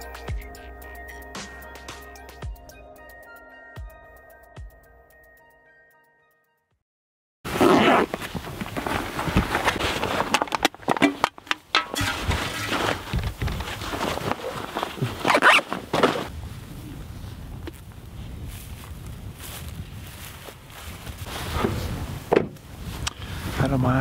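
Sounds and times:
fabric rustling: 7.5s - 16.3s
straps and buckles shifting: 7.5s - 16.3s, 21.2s - 23.2s
footsteps in dry grass: 8.0s - 23.8s.

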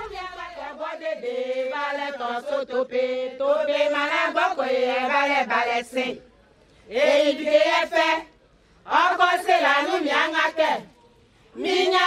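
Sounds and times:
women chanting a song: 0.0s - 6.3s, 6.9s - 10.9s, 11.6s - 12.0s.

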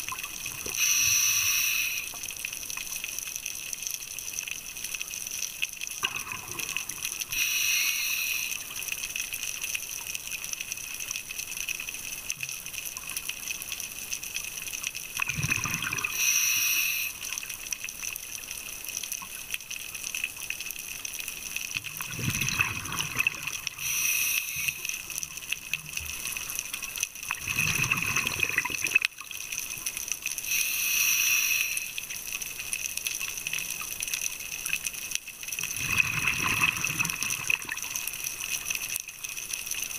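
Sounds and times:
steady hiss: 0.0s - 3.8s, 4.8s - 14.9s, 16.0s - 19.2s, 22.9s - 27.1s, 29.4s - 35.6s
regulator inhalation hiss: 0.8s - 2.3s, 7.3s - 8.8s, 16.1s - 17.4s, 23.7s - 25.1s, 30.4s - 32.1s
exhaled bubbles rushing underwater: 6.0s - 7.2s, 15.2s - 16.2s, 21.9s - 23.9s, 27.3s - 29.1s, 35.6s - 38.0s.

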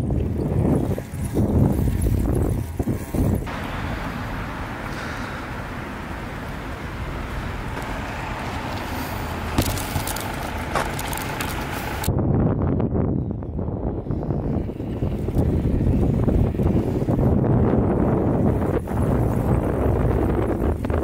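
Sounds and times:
wind rumble on microphone: 0.0s - 21.0s
outdoor rushing noise: 0.7s - 12.3s.

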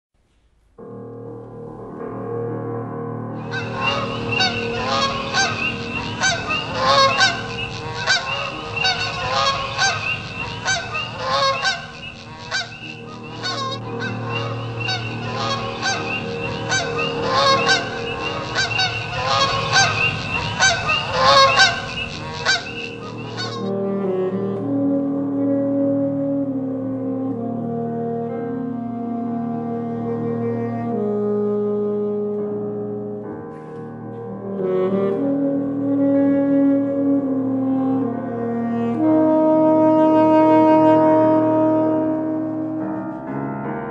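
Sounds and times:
flock of geese honking: 3.4s - 23.7s.

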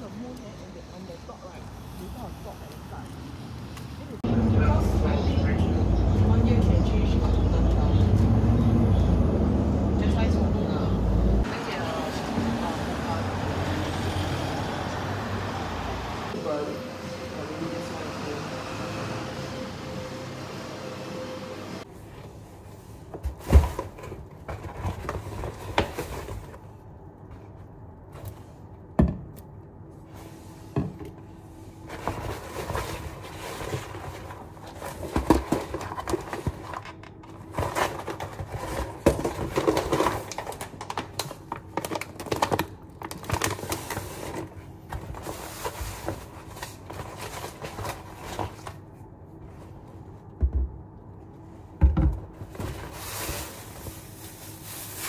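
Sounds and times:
packaging and bag rustling: 52.4s - 55.0s.

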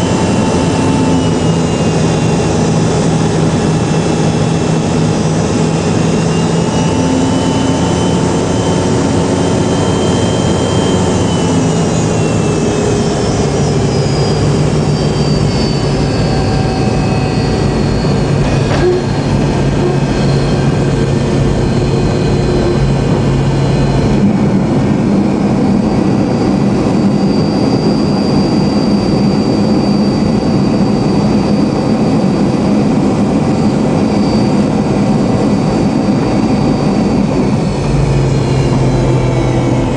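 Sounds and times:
jet engines whining: 0.0s - 39.9s
rushing air: 11.2s - 27.3s.

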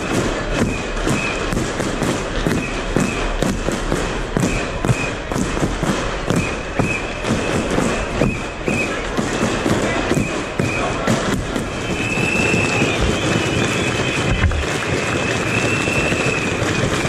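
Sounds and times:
crowd noise: 0.0s - 17.0s
traffic noise: 0.0s - 17.0s
camera jostling thumps: 14.3s - 14.7s.

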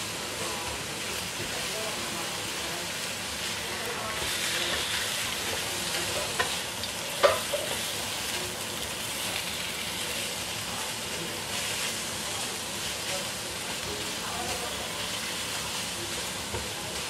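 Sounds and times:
squid sizzling in a wok: 0.0s - 17.0s
spatula scraping a wok: 3.0s - 8.4s.

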